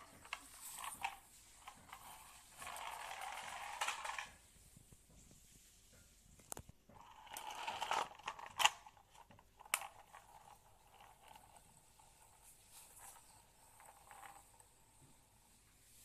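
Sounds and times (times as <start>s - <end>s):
plastic toy scraping on concrete: 0.1s - 4.4s, 7.0s - 14.6s.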